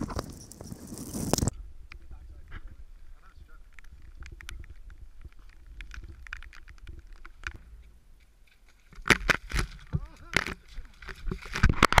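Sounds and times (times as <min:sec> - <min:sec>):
rain tapping on camera: 0:03.6 - 0:07.6.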